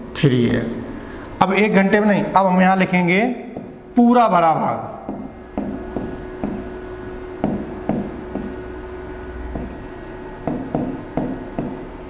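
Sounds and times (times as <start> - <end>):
faint steady hum: 0.0 - 12.0
pen tapping on screen: 3.6 - 3.8, 5.1 - 8.6, 9.6 - 11.9.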